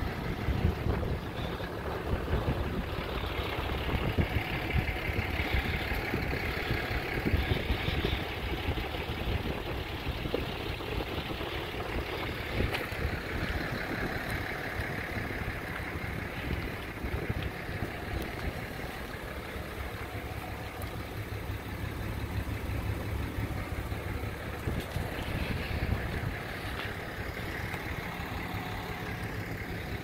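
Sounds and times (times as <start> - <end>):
wind buffeting microphone: 0.2 - 19.2, 22.3 - 27.1.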